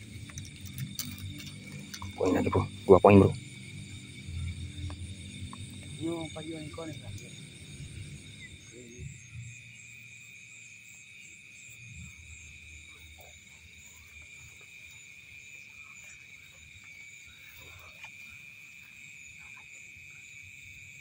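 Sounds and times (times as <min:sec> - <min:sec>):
low rumble: 0:00.0 - 0:09.9
frogs and insects calling: 0:00.0 - 0:21.0.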